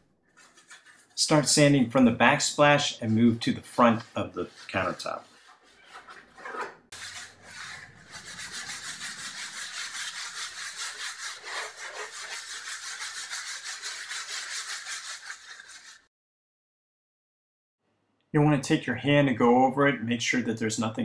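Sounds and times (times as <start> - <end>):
sanding block scratching: 0.4 - 1.8, 2.4 - 16.1.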